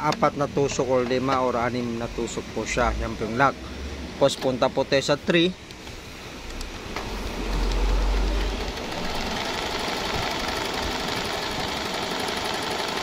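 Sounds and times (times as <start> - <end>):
deep hum: 6.4 - 9.4
sewing machine running: 6.8 - 13.0.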